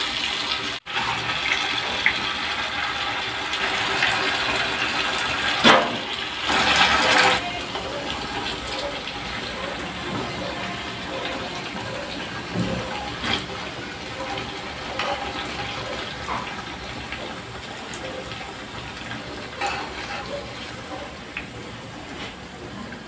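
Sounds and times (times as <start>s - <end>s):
tofu sizzling in hot oil: 0.0s - 10.0s.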